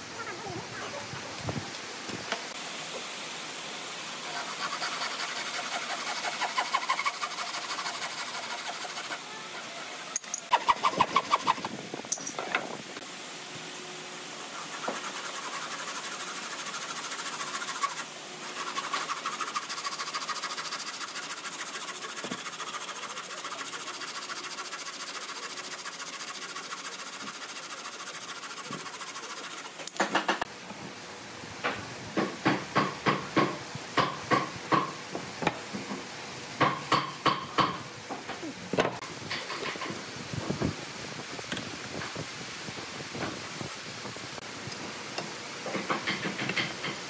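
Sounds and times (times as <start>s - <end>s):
hand saw cutting wood: 4.2s - 11.7s, 14.5s - 30.3s
hand tool scraping wood: 4.2s - 11.7s, 14.5s - 30.0s.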